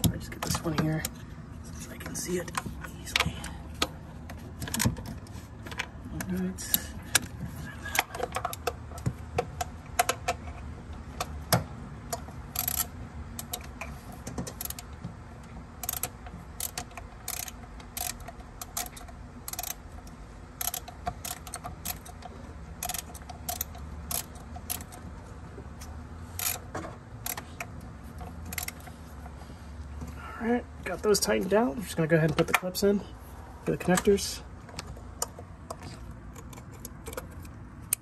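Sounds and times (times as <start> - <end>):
ratchet wrench clicking: 12.1 - 13.9, 14.5 - 14.9, 15.8 - 25.0, 26.3 - 27.8, 28.4 - 28.9.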